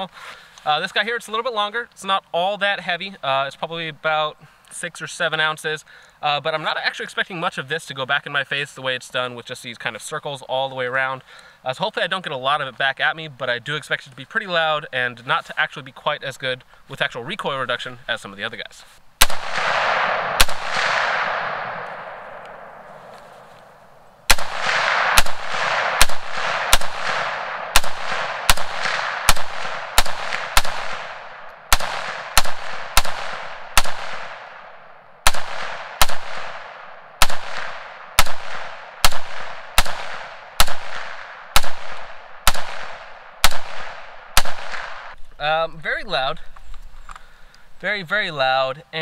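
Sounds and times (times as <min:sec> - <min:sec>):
rifle shots with ringing echo: 0:19.2 - 0:45.2.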